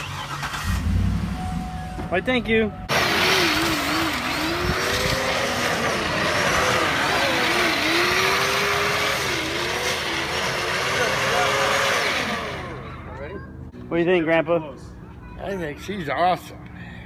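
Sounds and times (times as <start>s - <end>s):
tyres rushing on asphalt: 2.0s - 13.7s.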